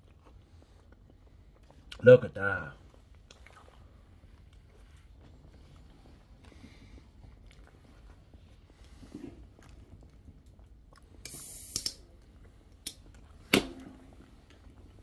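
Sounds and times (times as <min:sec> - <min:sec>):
people chewing shrimp: 0:00.0 - 0:02.0, 0:02.7 - 0:11.2
mouth clicks and smacks: 0:09.5 - 0:13.3
short hissing rush: 0:11.2 - 0:12.0.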